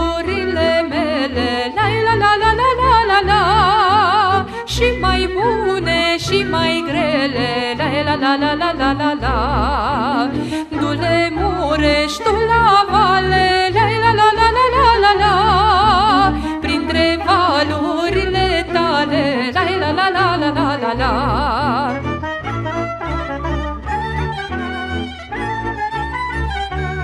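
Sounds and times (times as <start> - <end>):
folk party music: 0.0 - 27.0.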